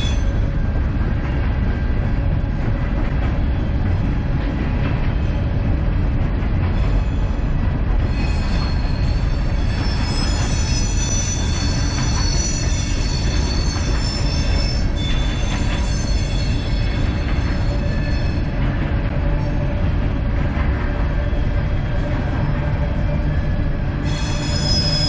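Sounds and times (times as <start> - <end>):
train wheels rumbling on rail: 0.0 - 25.0
wheels squealing: 8.0 - 18.5, 24.0 - 25.0.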